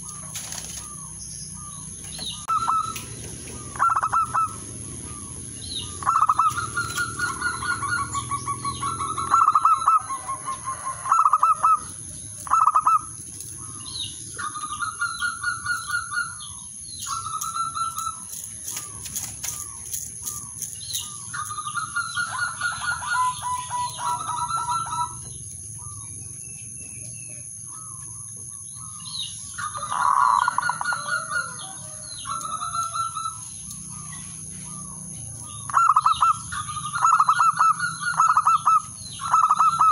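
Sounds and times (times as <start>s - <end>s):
wings fluttering against cage: 0.0s - 1.0s, 6.4s - 7.8s, 17.4s - 21.6s
dove cooing: 0.0s - 26.2s, 29.6s - 39.9s.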